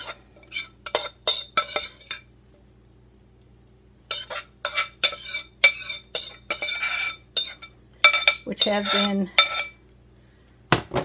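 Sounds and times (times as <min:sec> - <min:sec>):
spoon scraping a glass bowl: 0:00.0 - 0:02.3, 0:04.1 - 0:09.8.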